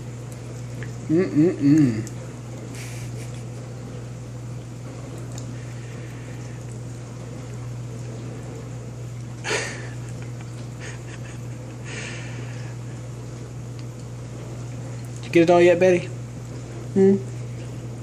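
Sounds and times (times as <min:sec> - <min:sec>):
low steady hum: 0:00.0 - 0:18.0
puppy licking with wet smacks: 0:04.6 - 0:05.5.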